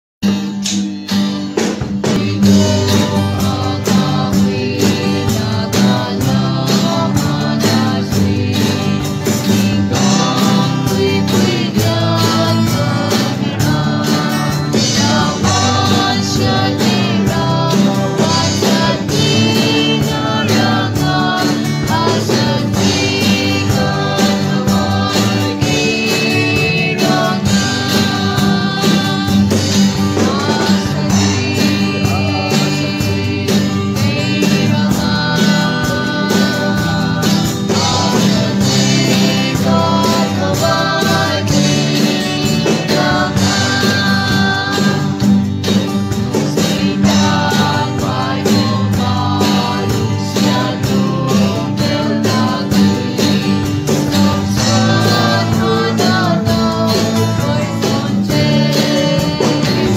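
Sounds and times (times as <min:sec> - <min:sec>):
bass guitar: 0:00.2 - 0:59.9
drum kit: 0:00.2 - 0:59.9
strummed guitar: 0:00.2 - 0:59.9
voices singing: 0:02.0 - 0:59.9.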